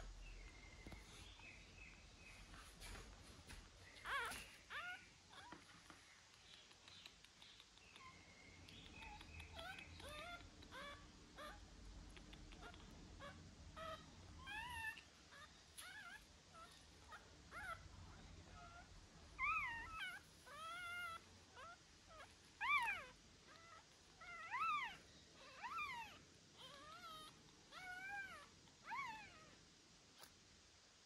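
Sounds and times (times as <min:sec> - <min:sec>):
pet animal crying: 0:04.0 - 0:05.6, 0:09.0 - 0:11.6, 0:12.6 - 0:17.8, 0:18.5 - 0:29.5.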